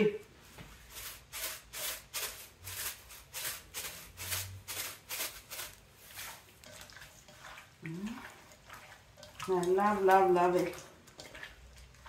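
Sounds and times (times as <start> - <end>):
seasoning shaker rattling: 0.9 - 6.8.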